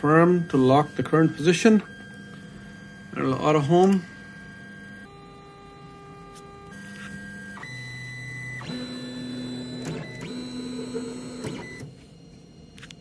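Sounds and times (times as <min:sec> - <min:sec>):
stepper motors whining: 0:00.0 - 0:12.0.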